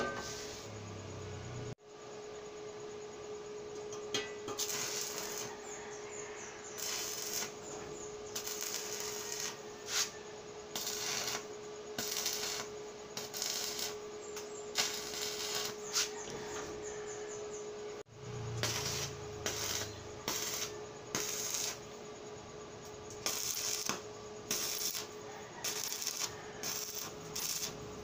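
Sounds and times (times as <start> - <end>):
welding arc crackling and sizzling: 4.2 - 16.3, 18.3 - 22.0, 23.0 - 28.0.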